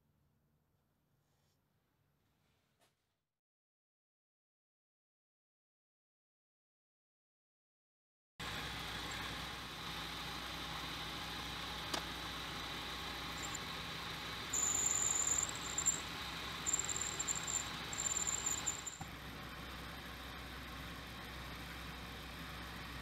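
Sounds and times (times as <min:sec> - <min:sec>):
metal lathe humming: 0:12.9 - 0:19.0
lathe tool squealing: 0:13.4 - 0:13.6, 0:14.5 - 0:19.0.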